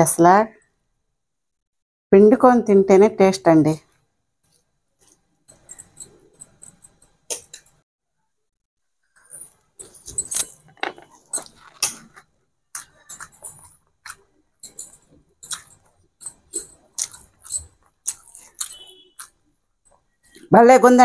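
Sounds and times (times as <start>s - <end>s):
bangles clinking: 4.4s - 7.8s, 9.2s - 20.5s
person chewing and smacking: 16.8s - 19.4s.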